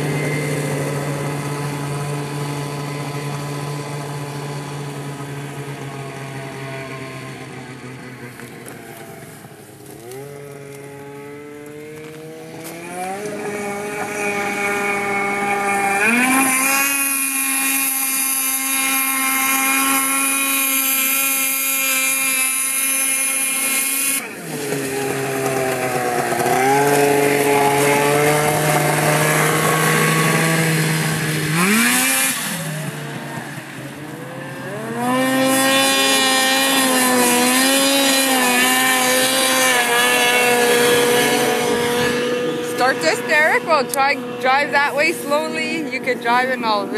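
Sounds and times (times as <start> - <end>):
snowmobile engine revving: 0.0 - 46.9.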